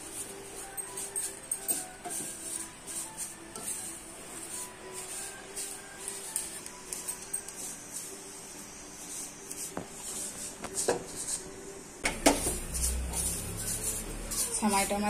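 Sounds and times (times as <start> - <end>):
noodles frying: 0.0 - 11.4, 12.0 - 15.0
spatula scraping in a pan: 0.0 - 11.6, 12.2 - 15.0.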